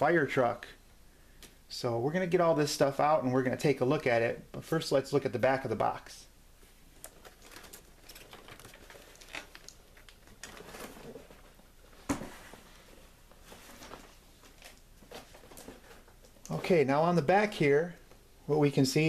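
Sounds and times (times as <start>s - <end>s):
cardboard scuffing and rustling: 10.6s - 16.1s.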